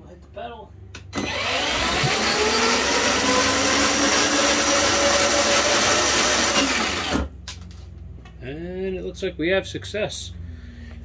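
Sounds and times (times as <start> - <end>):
toy car electric motors whining: 1.2 - 7.3.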